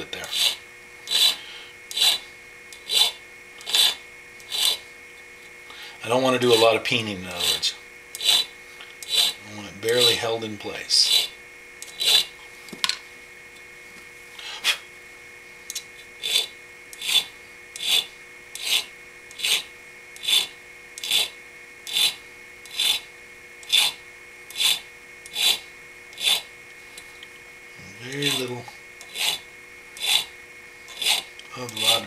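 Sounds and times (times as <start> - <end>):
hand file rasping on metal: 0.0 - 2.2, 2.8 - 4.8, 6.4 - 12.4, 16.2 - 26.5, 28.1 - 29.4, 30.0 - 30.3, 30.9 - 32.0
faint steady hum: 0.0 - 32.0.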